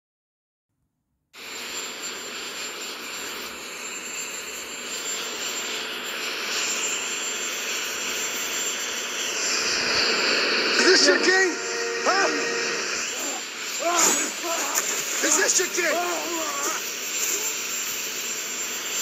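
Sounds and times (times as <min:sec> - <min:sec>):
jet engines rushing: 0:07.6 - 0:19.0.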